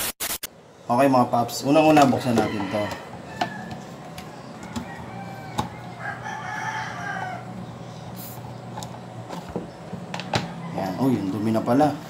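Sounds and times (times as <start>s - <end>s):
rooster crowing: 2.0s - 7.8s, 10.4s - 11.4s.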